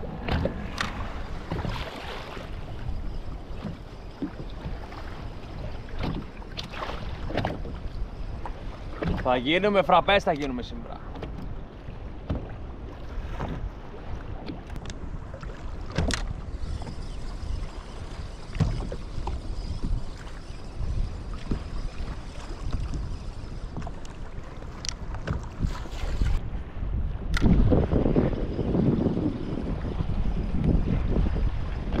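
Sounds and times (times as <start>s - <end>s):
water lapping at hull: 0.0s - 32.0s
wind noise on microphone: 11.1s - 32.0s.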